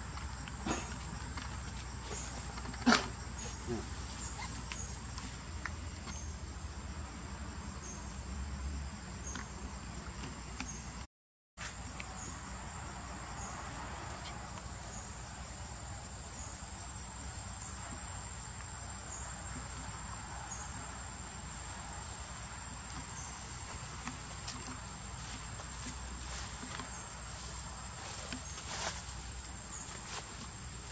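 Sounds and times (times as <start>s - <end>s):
insects droning: 0.0s - 30.9s.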